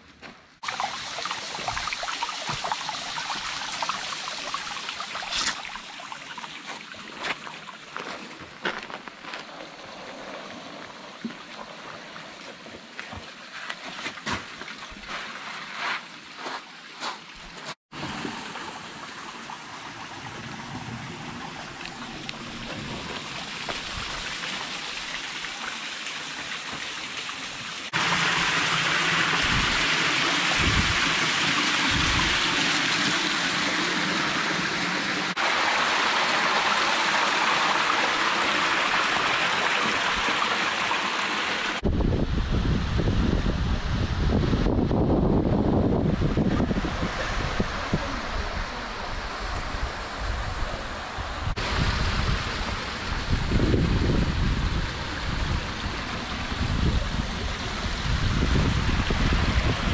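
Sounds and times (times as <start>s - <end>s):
stream splashing over rock: 0.6s - 12.5s, 14.1s - 41.8s
rushing water: 0.6s - 59.9s
scrapes and knocks on boulders: 12.5s - 17.8s.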